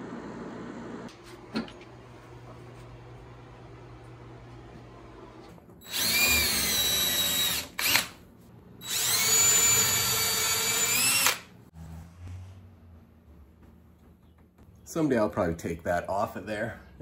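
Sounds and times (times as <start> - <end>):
cordless drill whining on wood: 5.4 - 8.2, 8.8 - 11.5.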